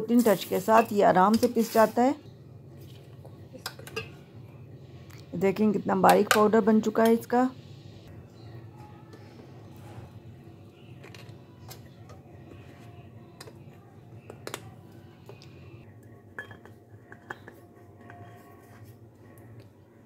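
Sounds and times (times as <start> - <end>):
metal spoon clinking on glass jar: 16.4 - 18.4.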